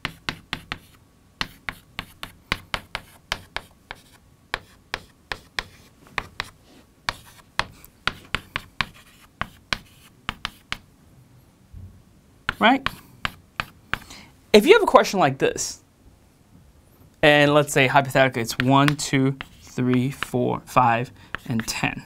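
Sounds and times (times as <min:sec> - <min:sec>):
chalk tapping and scratching: 0:00.0 - 0:10.9, 0:12.5 - 0:14.1, 0:18.2 - 0:20.4, 0:21.3 - 0:21.9.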